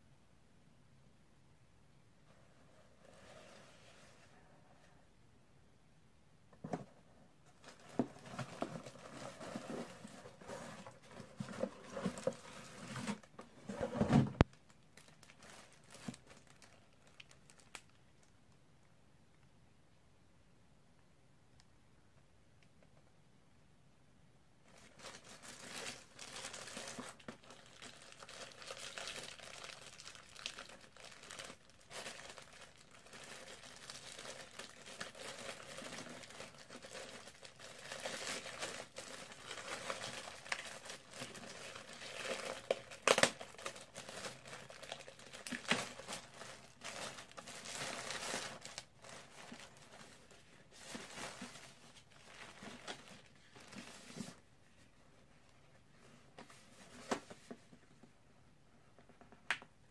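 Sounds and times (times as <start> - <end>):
plastic wrap crinkling and tearing: 7.6 - 18.3, 24.7 - 54.4.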